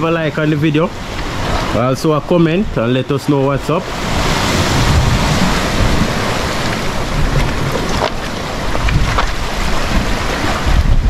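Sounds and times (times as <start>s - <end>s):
surf washing on rocks: 0.0s - 11.0s
wind on microphone: 3.8s - 11.0s.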